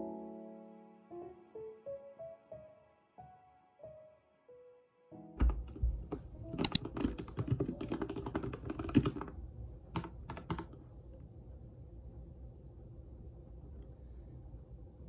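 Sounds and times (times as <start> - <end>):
faint room hum: 4.9 - 15.0
computer keyboard typing: 6.4 - 10.8.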